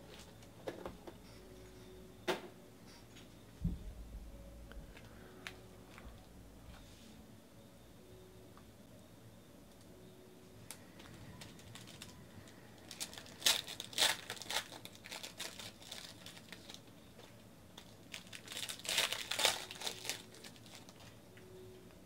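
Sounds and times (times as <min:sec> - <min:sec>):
foil wrapper crinkling and tearing: 0:10.7 - 0:21.2.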